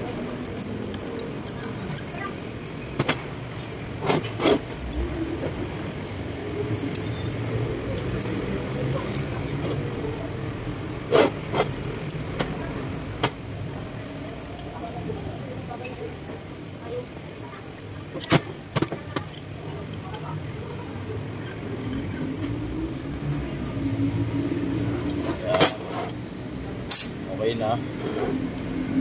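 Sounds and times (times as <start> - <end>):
metal tools clinking and knocking: 25.1 - 26.2, 26.9 - 27.6.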